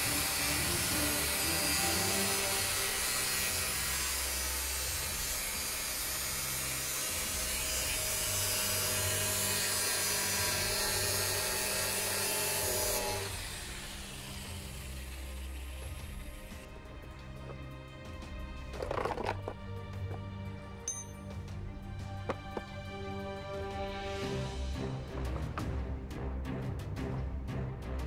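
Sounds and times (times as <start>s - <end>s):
angle grinder cutting metal: 0.0s - 16.7s.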